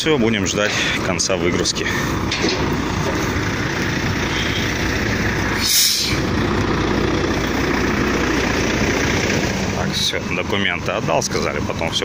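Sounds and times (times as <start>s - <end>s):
diesel truck engine idling: 0.0s - 12.0s
compressed air hiss: 5.6s - 6.2s.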